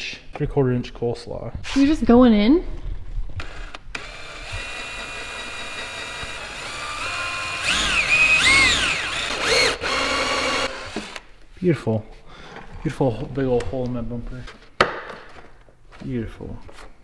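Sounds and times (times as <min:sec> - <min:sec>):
cordless drill whining: 0:03.4 - 0:11.3.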